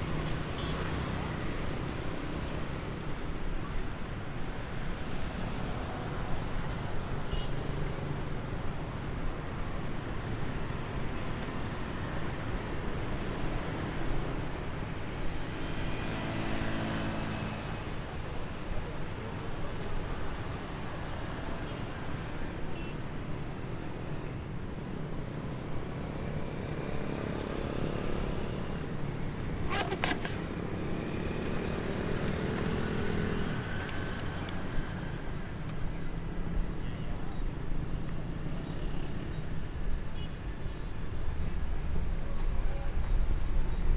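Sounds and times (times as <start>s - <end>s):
street traffic noise: 0.0s - 43.9s
vehicle engines passing: 25.1s - 36.4s.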